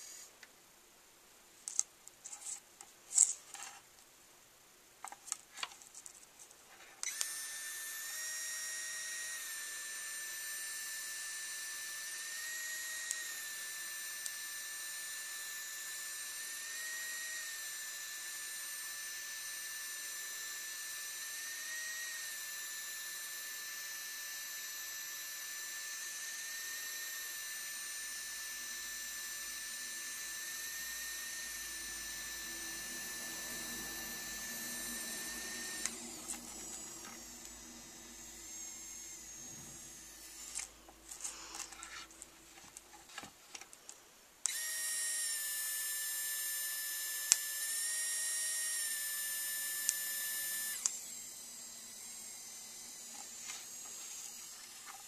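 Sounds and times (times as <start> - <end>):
high-pitched motor whine: 7.0 - 43.3, 44.4 - 55.0.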